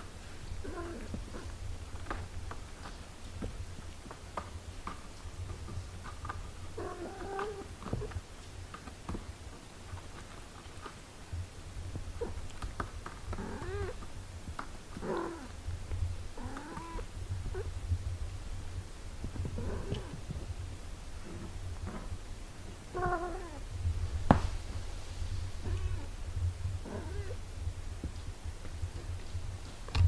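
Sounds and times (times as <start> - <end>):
low steady rumble: 11.2 - 30.0
kittens mewing: 13.3 - 14.0, 16.4 - 17.7, 25.6 - 26.2, 26.8 - 27.4.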